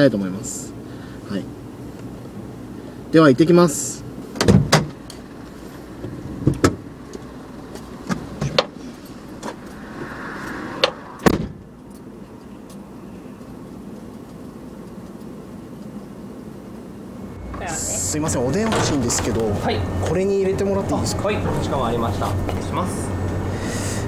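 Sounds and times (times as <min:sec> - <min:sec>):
low steady hum: 0:00.0 - 0:24.0
car door shutting: 0:04.4 - 0:05.0, 0:10.8 - 0:11.7, 0:18.5 - 0:19.6.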